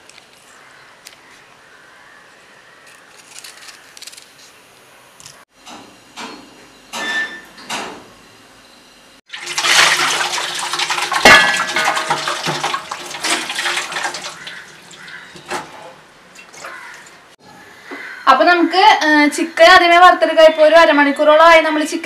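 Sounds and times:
water running: 9.3s - 17.3s
dishes and utensils clattering: 11.0s - 14.7s.

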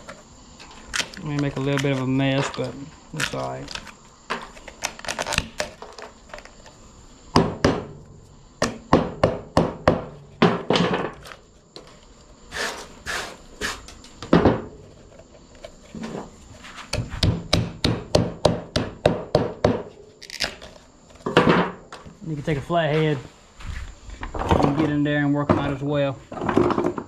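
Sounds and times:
hammer knocking wood: 8.6s - 11.2s, 17.0s - 19.9s.

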